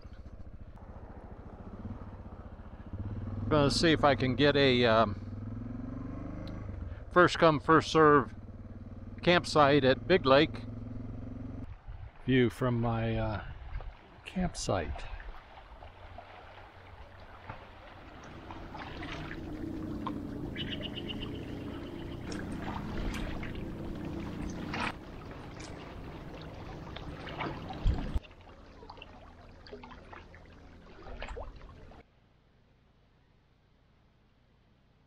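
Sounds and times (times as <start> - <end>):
faint engine hum: 0.0 - 12.2, 15.0 - 35.0
bird trill: 20.3 - 23.6.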